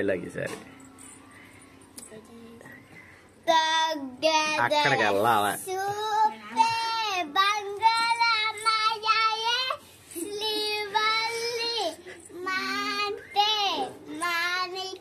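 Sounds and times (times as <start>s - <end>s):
girl singing high notes: 5.9s - 15.0s.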